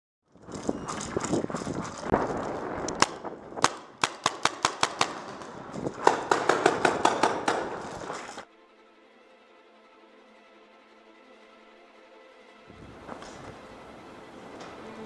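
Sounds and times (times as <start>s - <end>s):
paintball markers firing: 0.5s - 8.4s.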